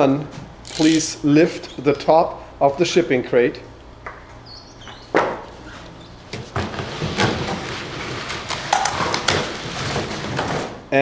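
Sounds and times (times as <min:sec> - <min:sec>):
cardboard scraping and rustling: 0:05.6 - 0:10.8.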